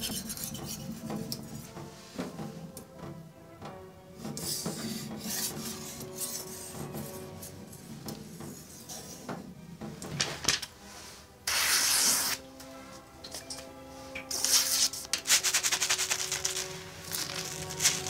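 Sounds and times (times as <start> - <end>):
knife rasping on whetstone: 0.0 - 1.1, 4.4 - 6.8
blade slicing paper: 11.5 - 12.4, 14.3 - 18.0.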